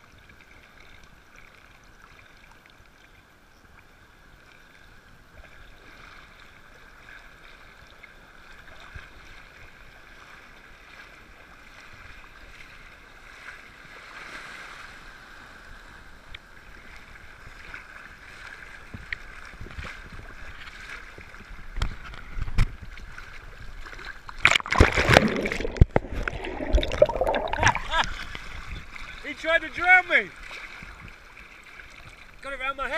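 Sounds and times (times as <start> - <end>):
sea surf sloshing: 5.5 - 32.9
wave breaking with loud splashing: 24.4 - 28.6.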